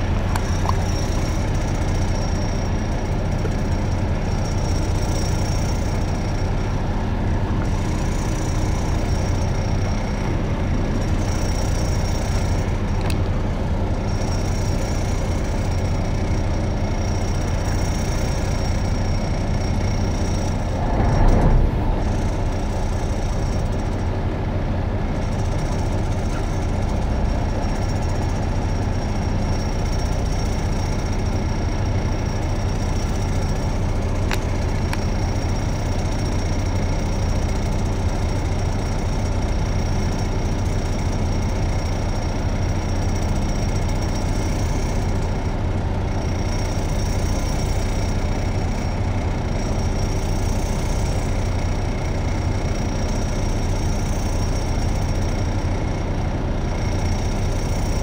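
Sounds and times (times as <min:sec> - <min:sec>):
boat engine humming: 0:00.0 - 0:58.0
rush of noise: 0:20.6 - 0:23.4.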